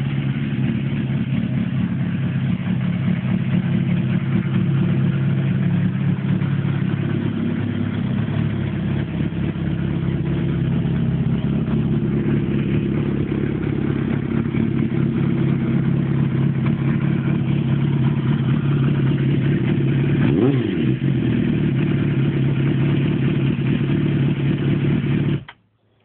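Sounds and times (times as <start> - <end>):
motorcycle engine idling: 0.0 - 25.5.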